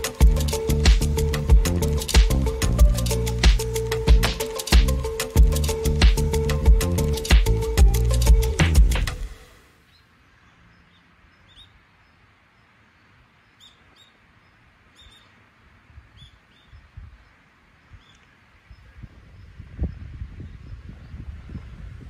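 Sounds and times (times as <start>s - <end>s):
small birds chirping: 9.8s - 22.0s.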